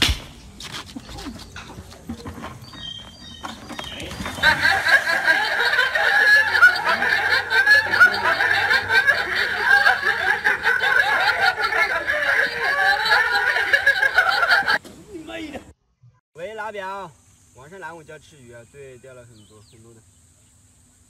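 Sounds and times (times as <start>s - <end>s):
people laughing: 4.0s - 15.7s.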